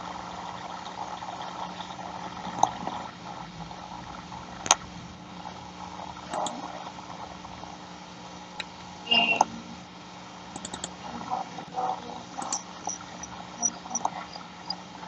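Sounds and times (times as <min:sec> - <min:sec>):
faint low hum: 0:00.0 - 0:15.0
open microphone hiss: 0:00.0 - 0:15.0
short clicks: 0:10.6 - 0:10.9.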